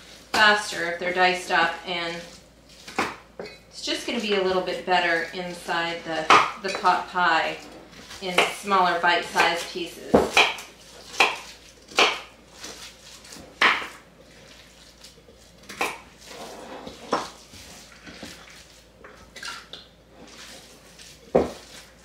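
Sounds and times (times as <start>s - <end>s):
knife chopping on wooden board: 2.9s - 3.2s, 6.2s - 6.6s, 9.4s - 12.8s, 13.6s - 14.0s, 15.7s - 16.1s, 21.3s - 21.8s.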